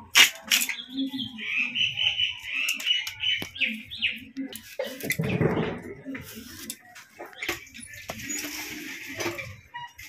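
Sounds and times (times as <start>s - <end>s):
bird chirping: 0.6s - 5.8s.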